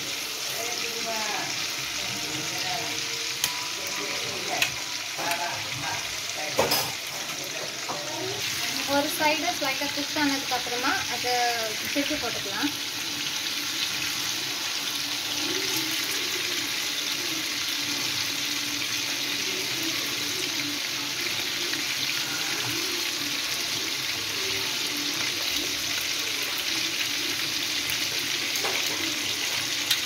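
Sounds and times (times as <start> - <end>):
chicken sizzling in hot oil: 0.0 - 30.0.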